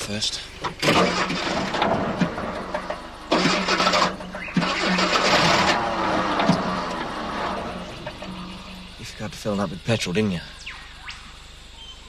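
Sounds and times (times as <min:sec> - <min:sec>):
starter cranking engine: 0:00.0 - 0:09.0.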